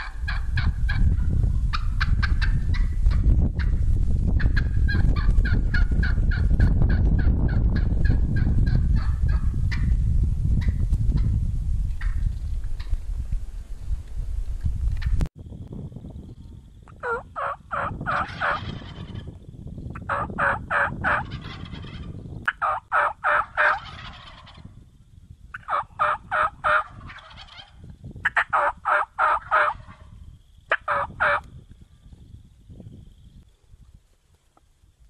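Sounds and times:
turkey hens yelping: 0:00.0 - 0:01.0, 0:01.7 - 0:03.2, 0:16.9 - 0:19.3, 0:19.9 - 0:24.7, 0:25.5 - 0:30.1, 0:30.7 - 0:31.5.

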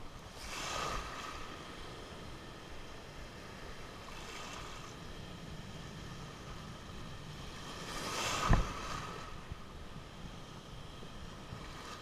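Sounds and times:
small waves breaking: 0:00.0 - 0:12.0
wind on microphone: 0:06.0 - 0:10.5.

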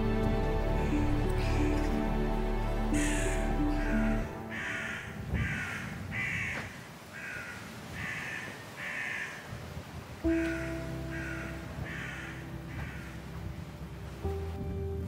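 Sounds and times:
soft background music: 0:00.0 - 0:06.2, 0:10.2 - 0:15.0
crow cawing: 0:03.0 - 0:09.5, 0:10.3 - 0:13.2.

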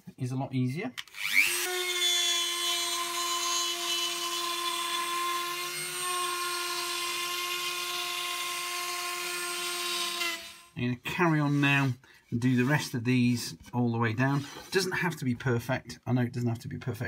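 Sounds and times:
rotary tool motor whining: 0:01.0 - 0:10.7.

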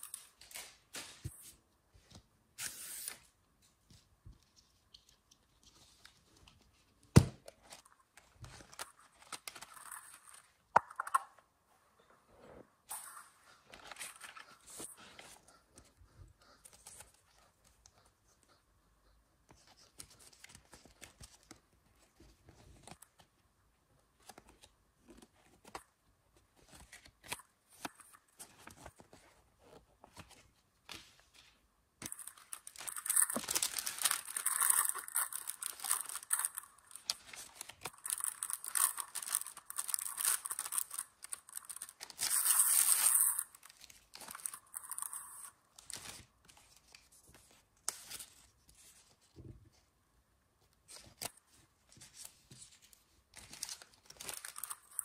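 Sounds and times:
plastic packet tearing open: 0:32.0 - 0:46.2, 0:53.4 - 0:55.0
plastic packet rustling: 0:32.0 - 0:46.3, 0:53.4 - 0:55.0.

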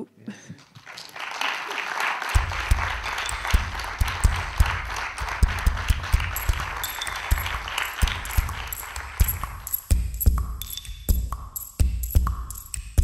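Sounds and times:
audience applauding: 0:00.6 - 0:09.9.

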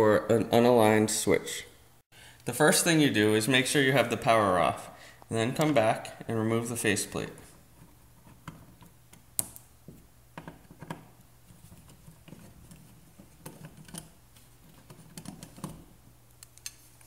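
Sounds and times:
screwdriver clicks and scrapes on metal: 0:10.4 - 0:17.0.

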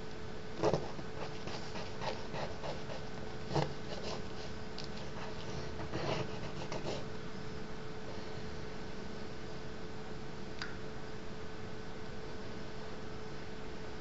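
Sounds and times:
faint hum: 0:00.0 - 0:14.0
taps and scrapes: 0:00.6 - 0:07.0
pen scratching on paper: 0:00.6 - 0:07.1.

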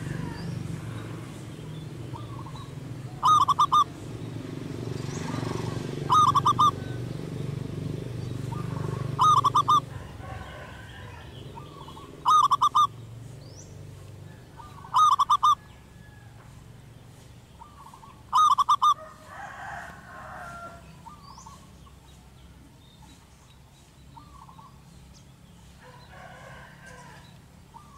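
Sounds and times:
dove cooing: 0:00.0 - 0:07.3, 0:08.4 - 0:13.0, 0:14.3 - 0:16.3, 0:17.6 - 0:21.7.

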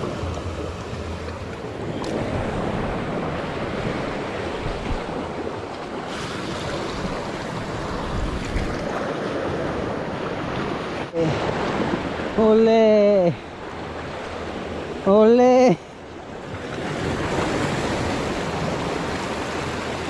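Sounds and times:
wind buffeting microphone: 0:00.0 - 0:12.4
sea surf washing on beach: 0:00.0 - 0:20.0.

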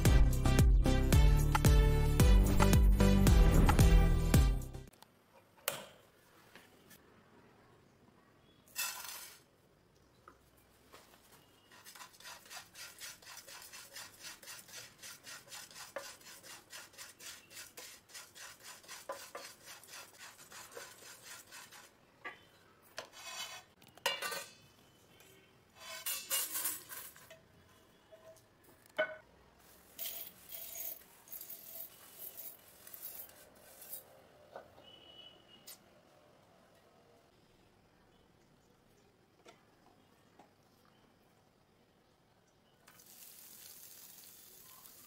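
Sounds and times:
flakes scraped onto a steel plate: 0:08.7 - 0:09.5, 0:25.8 - 0:27.4, 0:29.8 - 0:34.1
wooden spatula scraping a dry pan: 0:11.6 - 0:22.0, 0:23.0 - 0:23.8, 0:25.8 - 0:27.2.

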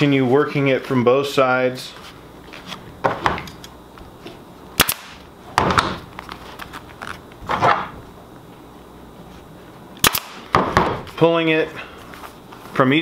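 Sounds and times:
staple gun firing: 0:04.8 - 0:05.2, 0:10.0 - 0:10.4.

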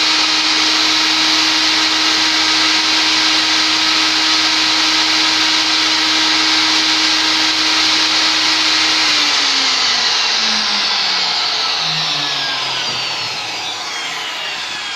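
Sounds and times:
saw blade winding down whine: 0:00.0 - 0:14.9
table saw running: 0:00.0 - 0:14.9.

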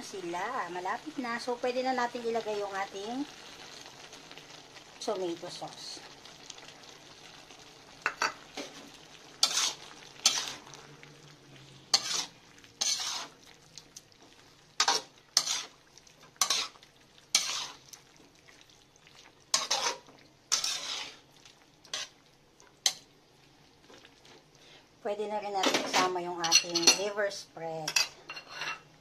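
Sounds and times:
faint sizzle: 0:00.0 - 0:29.0
metal spatula scraping a wok: 0:09.4 - 0:10.8, 0:11.9 - 0:13.4, 0:14.8 - 0:15.8, 0:16.4 - 0:17.8, 0:19.5 - 0:21.3, 0:21.9 - 0:22.2.

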